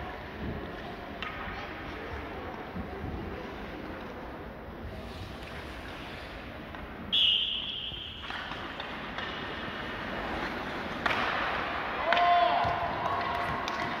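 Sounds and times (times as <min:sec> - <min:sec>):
referee's whistle blast: 0:07.1 - 0:08.2.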